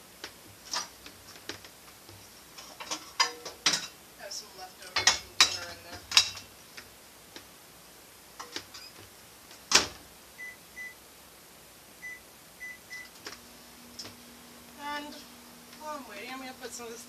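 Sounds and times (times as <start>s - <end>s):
microwave humming: 4.9s - 17.0s
faint keypad beeps: 10.4s - 11.0s, 12.0s - 13.1s.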